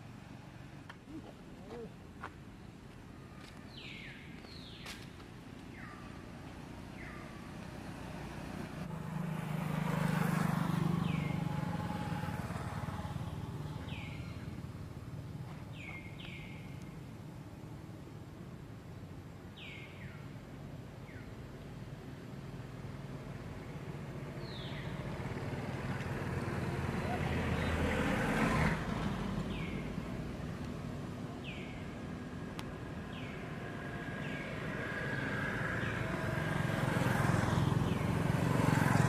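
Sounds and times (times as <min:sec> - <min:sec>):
vehicle engine passing: 0:06.6 - 0:16.5, 0:23.3 - 0:39.0.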